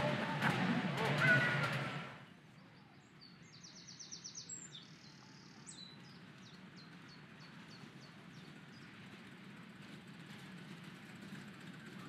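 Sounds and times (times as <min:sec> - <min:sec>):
songbirds singing: 0:02.6 - 0:09.0.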